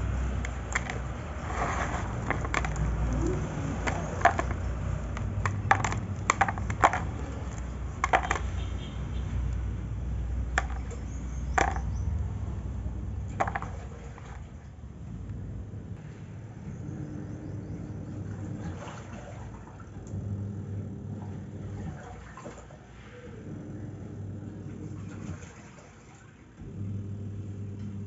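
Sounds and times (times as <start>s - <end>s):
dry clay flakes clinking: 0.0s - 8.8s, 10.5s - 12.2s.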